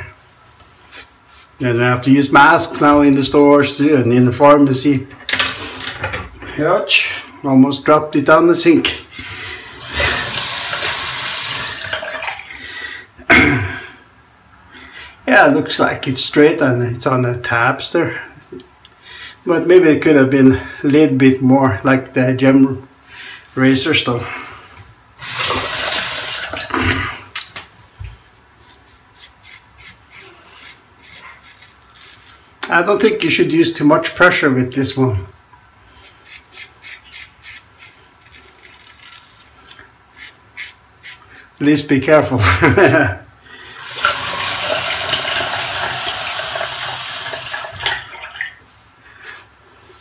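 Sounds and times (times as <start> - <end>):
tap water running: 9.7 - 12.6, 25.2 - 26.8, 43.8 - 48.6
razor scraping beard stubble: 28.6 - 32.4, 36.0 - 39.5, 40.1 - 41.2.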